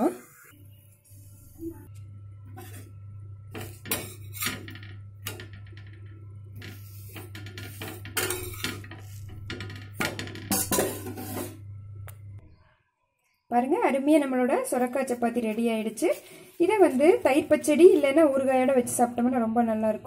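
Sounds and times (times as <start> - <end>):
steady low hum: 0.5 - 12.6
metal utensil scraping on griddle: 2.6 - 2.9, 3.5 - 11.6.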